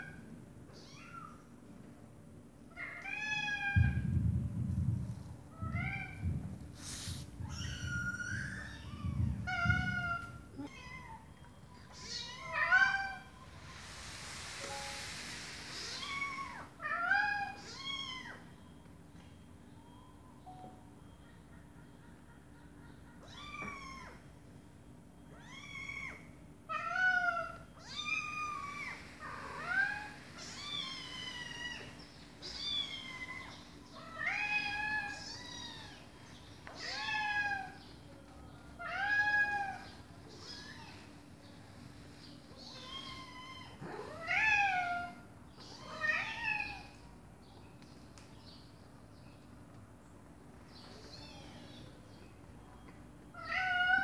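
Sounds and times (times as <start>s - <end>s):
cat and kitten meowing: 7.4s - 11.2s, 23.2s - 24.2s, 25.3s - 37.8s.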